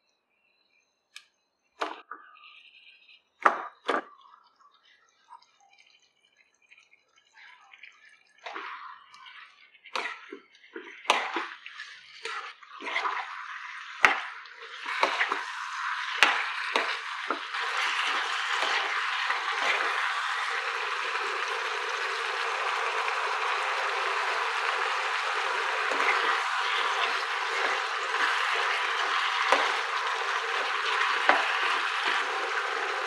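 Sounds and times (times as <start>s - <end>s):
chicken sizzling in oil: 5.7s - 33.0s
spatula scraping pan: 8.5s - 33.0s.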